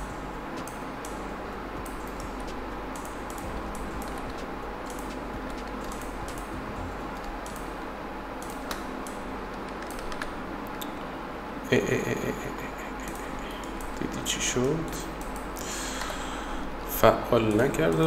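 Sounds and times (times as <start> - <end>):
low hum and hiss: 0.0 - 18.0.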